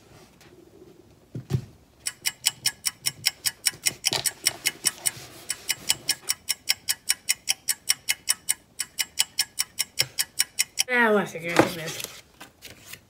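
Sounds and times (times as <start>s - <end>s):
rapid even ticking: 2.0s - 10.9s.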